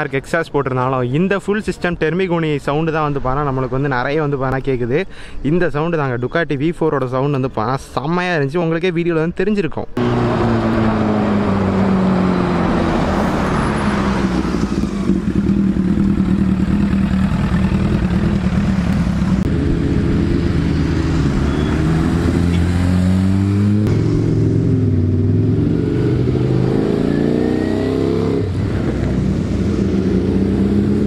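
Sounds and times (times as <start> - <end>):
motorcycle engines revving: 10.0 - 31.0.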